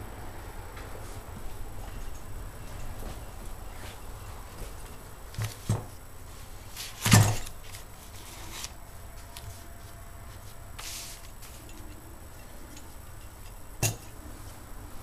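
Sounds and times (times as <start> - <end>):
hand brushing across newspaper: 7.7 - 11.6.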